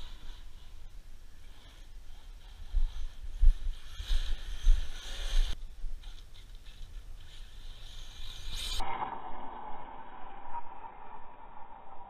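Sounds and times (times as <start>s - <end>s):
distant rc truck whine: 7.4s - 12.0s.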